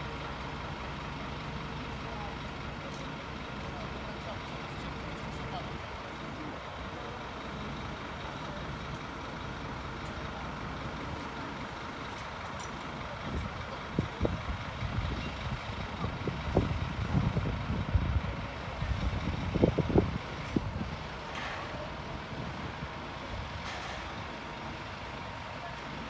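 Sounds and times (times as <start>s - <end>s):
fire engines running: 0.0s - 26.0s
wind buffeting microphone: 13.3s - 21.1s.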